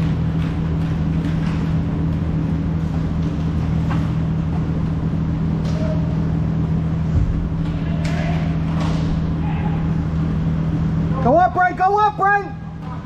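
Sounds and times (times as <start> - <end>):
hockey sticks clicking: 0.0 - 4.2, 7.6 - 9.0
indoor rink low drone: 0.0 - 13.0.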